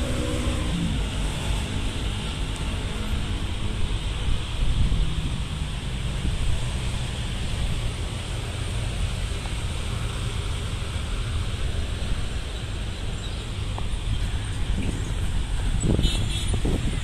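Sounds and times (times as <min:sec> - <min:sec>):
wind buffeting microphone: 0:03.2 - 0:07.8, 0:13.6 - 0:17.0.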